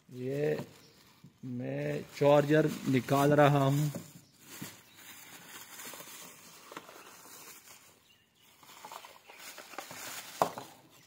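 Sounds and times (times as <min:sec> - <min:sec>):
plastic bag rustling: 0:00.0 - 0:11.0.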